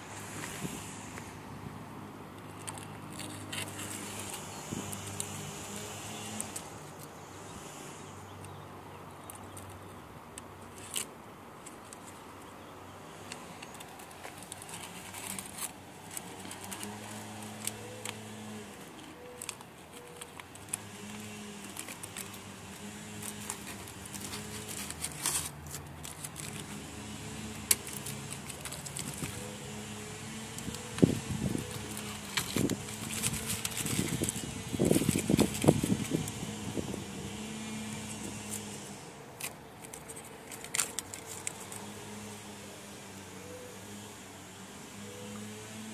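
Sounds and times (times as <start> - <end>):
tape tearing and crinkling: 2.4 - 7.2, 10.6 - 12.2, 13.1 - 42.4.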